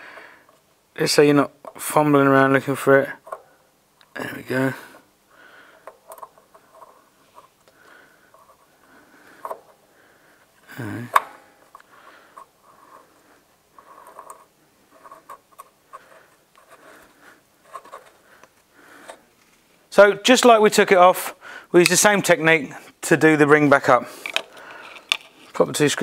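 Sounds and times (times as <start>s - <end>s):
metallic scraping and clicks: 5.8s - 8.7s, 11.1s - 19.6s, 24.2s - 25.8s.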